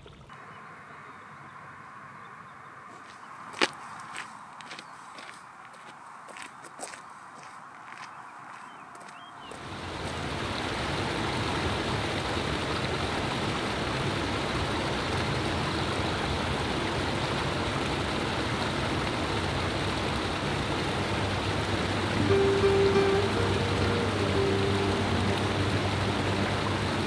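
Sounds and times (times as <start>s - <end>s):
river water rushing over rocks: 9.6s - 27.0s.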